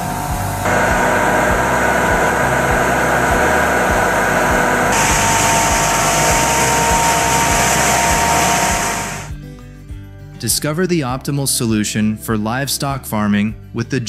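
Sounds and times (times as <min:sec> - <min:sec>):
bale shredder whirring: 0:00.0 - 0:09.3.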